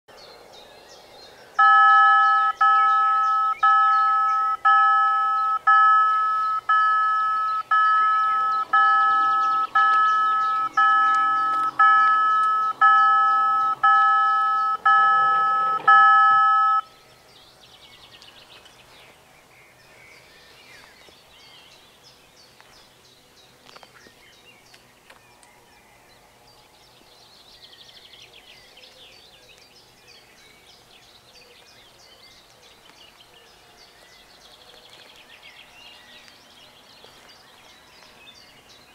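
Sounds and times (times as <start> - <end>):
faint birdsong: 0.1 - 38.9
level crossing warning bells: 1.6 - 16.9.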